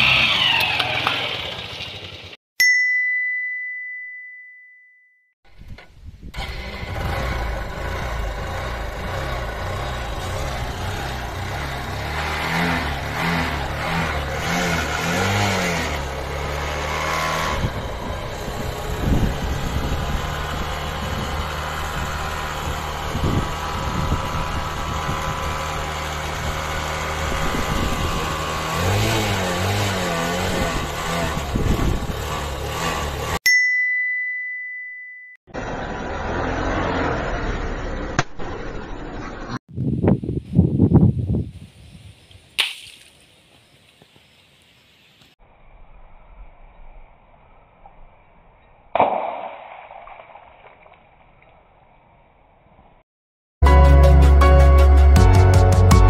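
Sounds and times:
motorcycle engine idling and revving: 0.0 - 2.4, 5.5 - 33.4, 35.5 - 41.5
ding: 2.6 - 5.3, 33.5 - 35.4.

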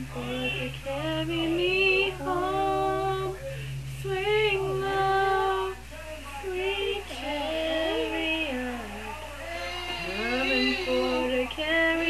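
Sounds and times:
girl singing unaccompanied: 6.4 - 9.0, 9.7 - 12.0.

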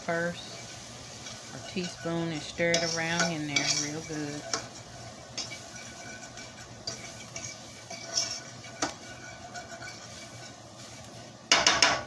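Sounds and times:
fork scraping a steel skillet: 0.2 - 12.0
fork clinking against pan: 2.7 - 10.5.

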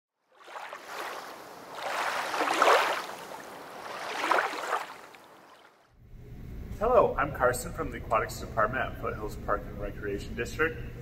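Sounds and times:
waves washing in: 0.3 - 5.9.

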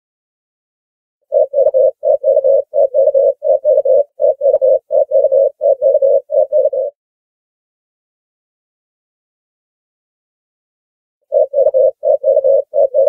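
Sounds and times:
dove cooing: 1.3 - 7.0, 11.3 - 13.0.

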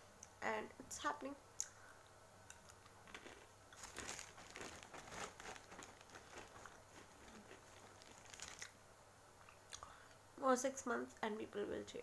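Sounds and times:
person chewing crunchy snack: 3.1 - 8.7.

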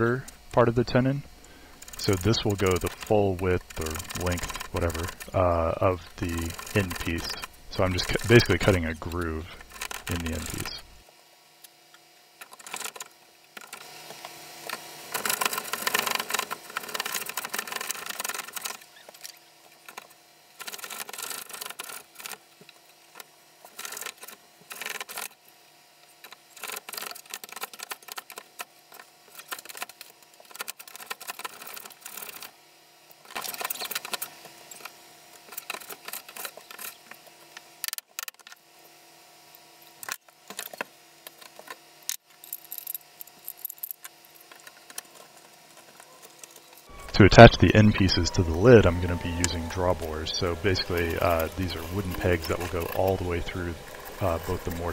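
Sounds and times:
plane rasping wood: 46.9 - 54.9.

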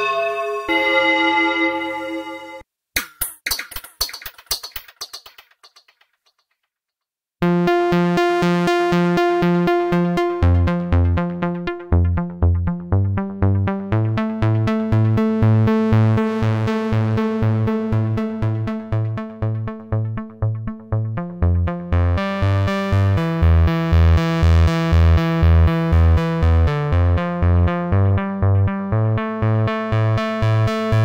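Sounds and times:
fast percussive synth pattern: 3.2 - 6.5.

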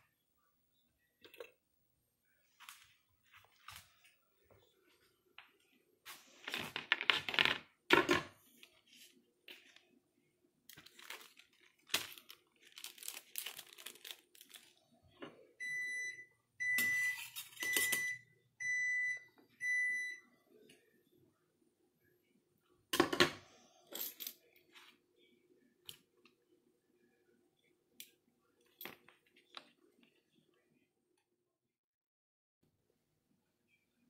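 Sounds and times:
plastic wrapper crinkling and tearing: 10.7 - 14.9
kitchen appliance beeping: 15.6 - 20.3.

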